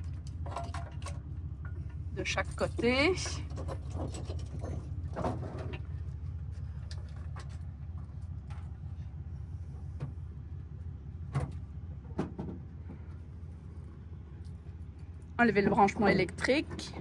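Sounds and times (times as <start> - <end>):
metal chains clinking and rattling: 0.0 - 6.1
truck engine idling: 0.0 - 17.0.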